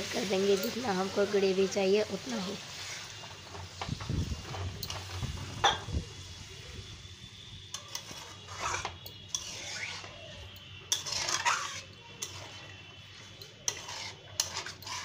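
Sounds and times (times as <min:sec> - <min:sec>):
spoon scraping pan: 0:07.7 - 0:15.0.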